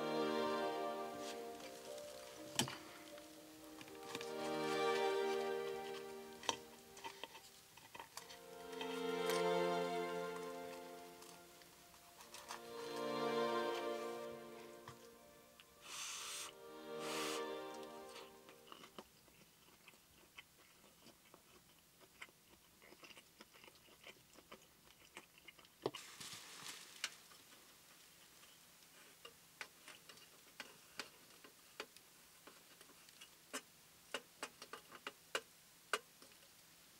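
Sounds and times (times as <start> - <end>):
brief hiss: 15.8 - 18.4.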